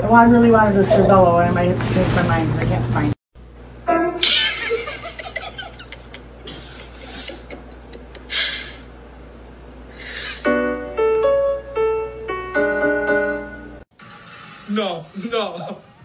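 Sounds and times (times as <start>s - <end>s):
piano notes and chords: 3.9s - 4.3s, 10.4s - 13.8s.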